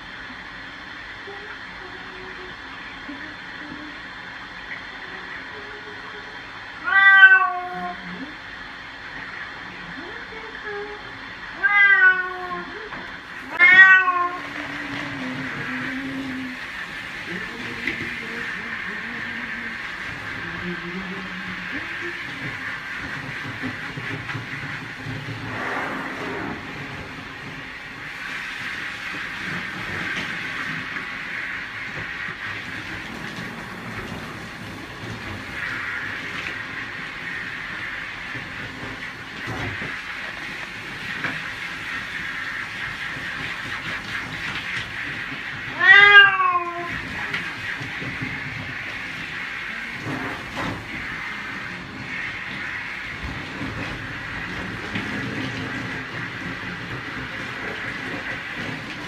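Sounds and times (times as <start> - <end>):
shower water running: 0.0 - 59.0
cat meowing loudly: 6.8 - 8.2, 11.6 - 12.7, 13.4 - 14.8, 45.7 - 47.3.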